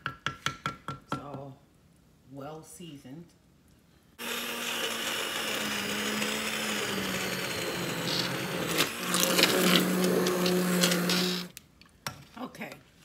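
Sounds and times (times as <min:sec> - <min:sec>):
stick blender whirring in soup: 0:04.2 - 0:11.5.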